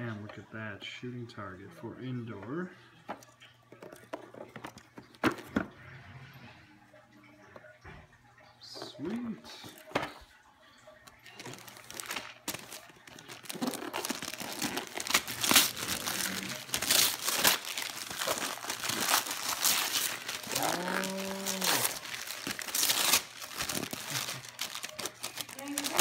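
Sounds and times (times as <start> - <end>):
wrapping paper tearing and crumpling: 11.3 - 26.0
person humming: 20.4 - 22.1.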